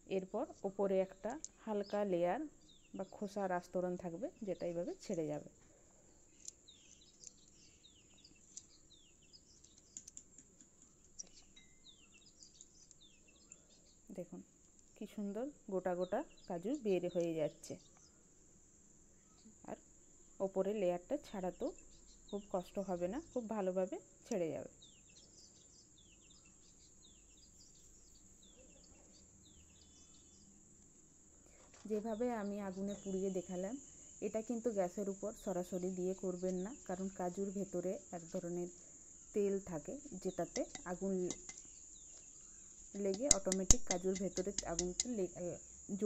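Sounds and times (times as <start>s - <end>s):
faint birds chirping: 0.0s - 46.0s
insect trill: 32.0s - 46.0s
soft finger clicks: 43.0s - 45.2s.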